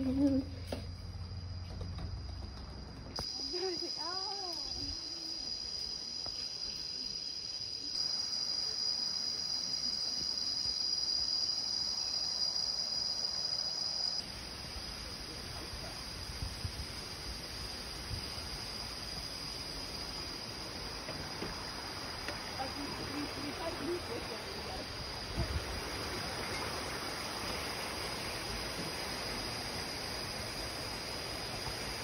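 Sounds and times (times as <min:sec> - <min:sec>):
high-pitched insect chorus: 0:00.0 - 0:32.0
flowing water: 0:18.7 - 0:32.0.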